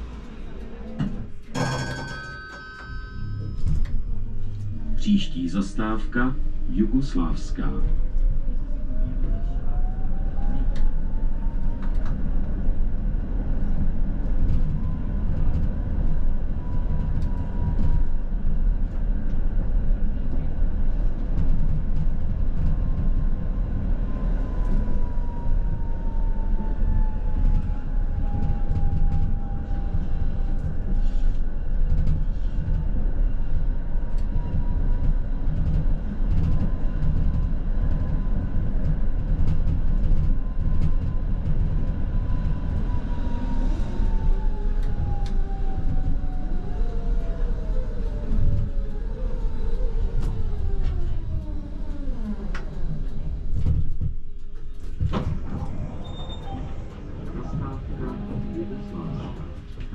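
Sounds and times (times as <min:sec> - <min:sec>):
tram wheels rumbling on rails: 0:00.0 - 0:59.9
rail clicks: 0:44.1 - 0:59.9.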